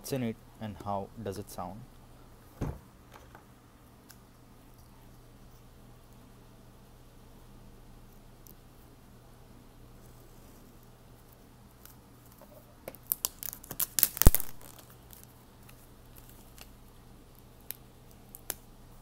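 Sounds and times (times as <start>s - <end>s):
plastic wrap crackling and tearing: 11.7s - 18.7s.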